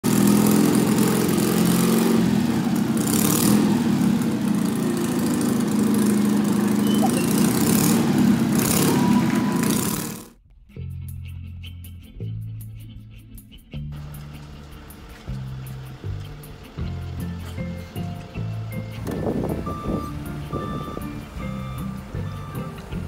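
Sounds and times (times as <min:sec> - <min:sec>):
engine idling: 0:00.0 - 0:10.5, 0:13.9 - 0:23.0.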